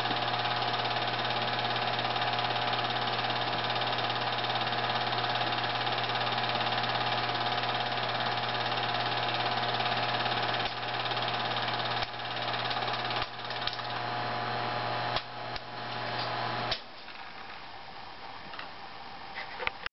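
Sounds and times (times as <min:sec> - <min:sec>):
film clattering through projector: 0:00.0 - 0:14.2
projector motor hum: 0:00.0 - 0:19.9
sharp clicks: 0:12.0 - 0:14.0.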